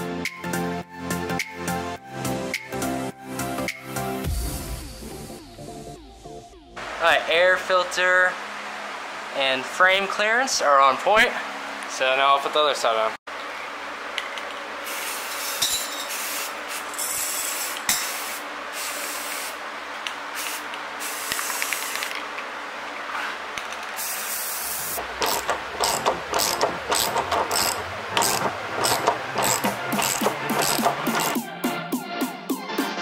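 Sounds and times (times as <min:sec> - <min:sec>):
background music with steady beat: 0:00.0 - 0:07.2, 0:24.9 - 0:33.0
aerosol spray paint hissing: 0:14.8 - 0:19.6, 0:20.3 - 0:22.1, 0:24.0 - 0:26.0.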